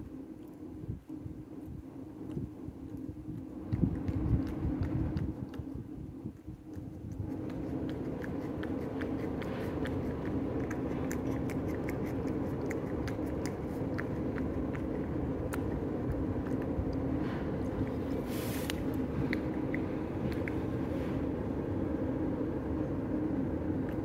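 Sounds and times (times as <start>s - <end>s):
low hum: 0.0s - 24.0s
cat licking: 0.1s - 22.4s.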